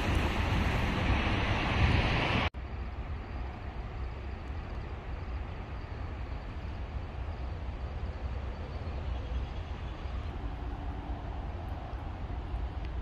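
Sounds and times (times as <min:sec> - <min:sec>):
wind buffeting microphone: 0:00.0 - 0:02.5
distant traffic hiss: 0:00.0 - 0:13.0.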